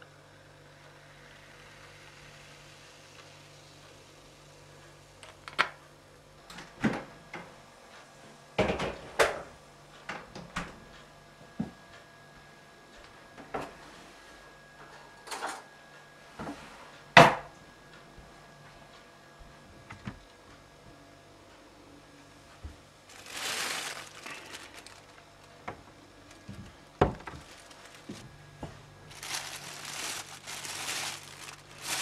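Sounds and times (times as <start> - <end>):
faint low hum: 0.0 - 32.0
kitchen knocks and clunks: 8.6 - 9.4, 17.2 - 17.5, 26.5 - 27.4.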